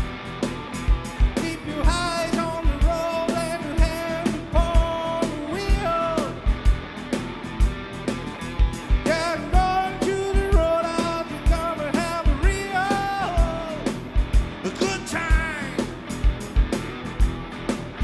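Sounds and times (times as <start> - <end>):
electric guitar strumming: 0.0 - 18.0
man singing: 1.3 - 6.5, 9.0 - 14.0, 14.6 - 16.0.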